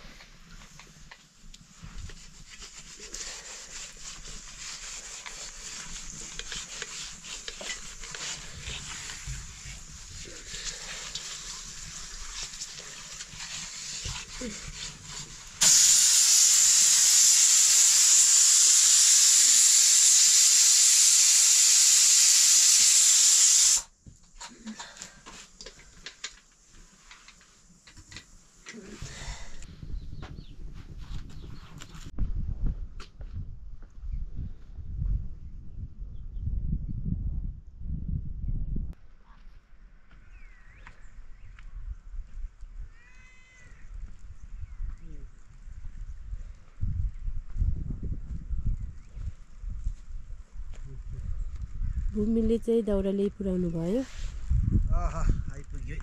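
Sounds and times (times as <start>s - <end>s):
pressure cooker venting steam: 5.2s - 23.9s.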